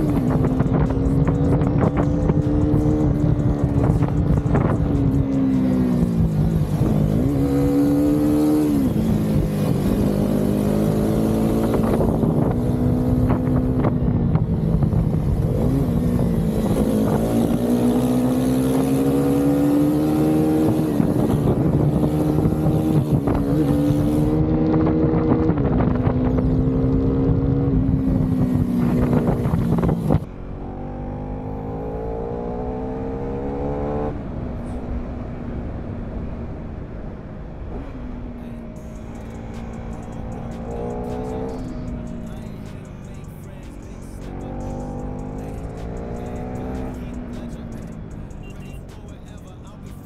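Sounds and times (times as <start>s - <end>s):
motorcycle engine accelerating: 0.0s - 50.0s
wind on microphone: 11.4s - 18.3s, 20.4s - 30.3s.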